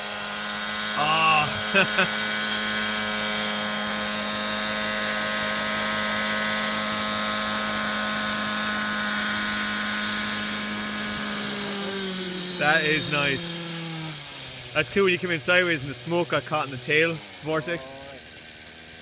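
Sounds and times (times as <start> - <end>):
rc helicopter whine: 0.0 - 19.0.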